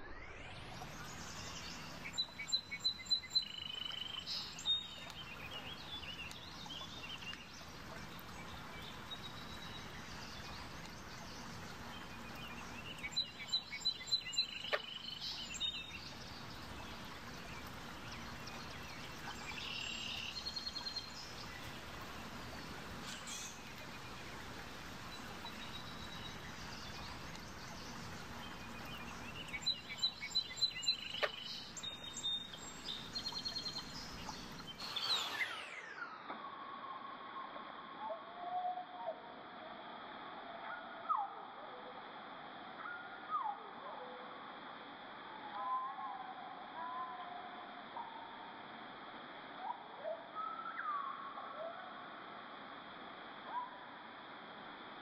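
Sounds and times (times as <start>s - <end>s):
steady outdoor hiss: 0.0s - 55.0s
songbird singing rapid high notes: 25.5s - 35.9s.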